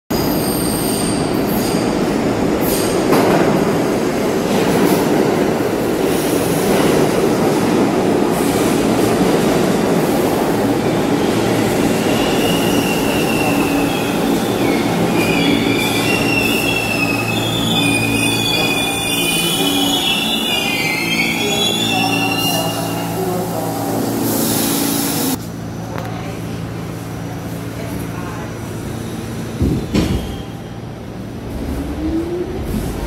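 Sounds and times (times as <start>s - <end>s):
subway train rumbling: 0.1s - 33.0s
wheel and brake squeal: 12.0s - 23.0s.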